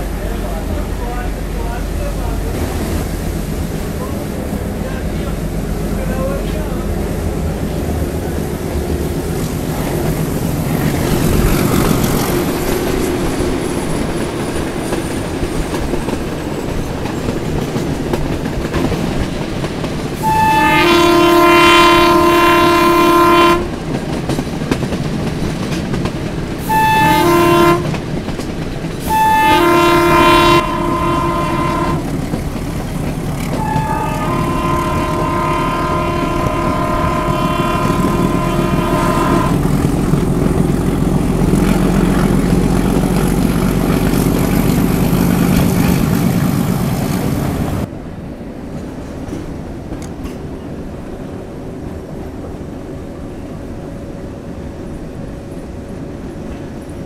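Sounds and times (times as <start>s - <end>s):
train rumbling on rails: 0.0s - 57.0s
train horn blasts: 20.2s - 23.8s, 26.6s - 28.0s, 29.0s - 32.2s, 33.5s - 39.8s.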